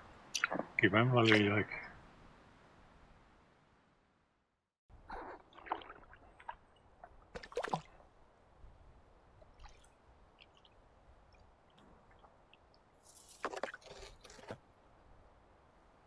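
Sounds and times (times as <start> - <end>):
water splashing and sloshing: 0.0 - 2.3, 5.0 - 14.8
faint water drips: 9.3 - 13.6.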